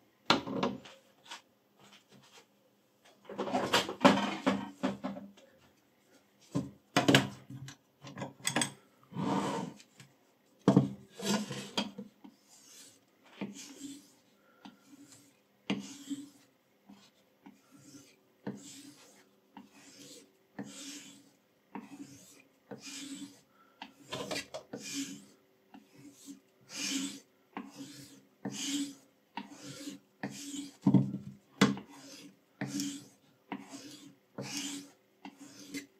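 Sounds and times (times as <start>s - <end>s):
knife rubbing on a strop: 11.1s - 14.2s, 14.8s - 30.8s, 31.8s - 35.9s.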